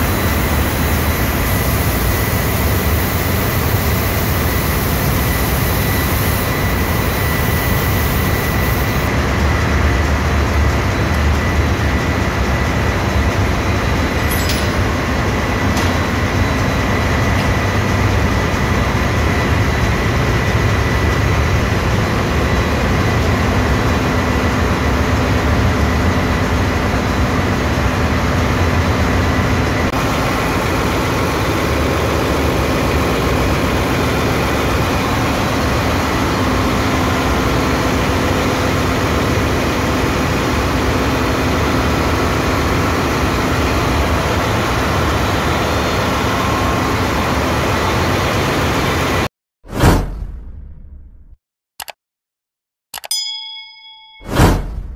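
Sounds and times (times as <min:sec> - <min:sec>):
thin steady whine: 0:00.0 - 0:09.9
engine room machinery drone: 0:00.0 - 0:49.3.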